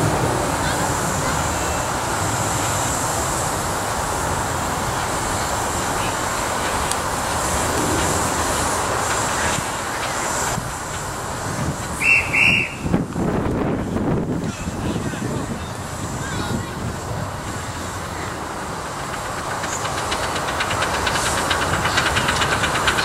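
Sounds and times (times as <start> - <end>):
miniature steam locomotives running: 0.0 - 23.0
steam hissing: 0.0 - 23.0
short high whistle peeps: 12.0 - 12.9.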